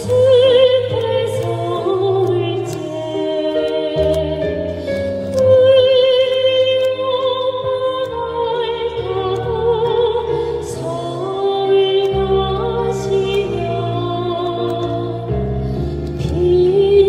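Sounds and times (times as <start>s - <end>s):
women singing with vibrato: 0.0s - 15.5s, 16.2s - 17.0s
electric keyboard accompaniment: 0.0s - 17.0s.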